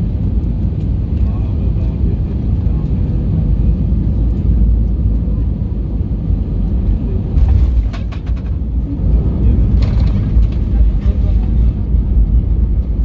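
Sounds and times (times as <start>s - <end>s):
airplane cabin rumble: 0.0s - 13.0s
landing gear thumps and rattles: 7.4s - 8.6s.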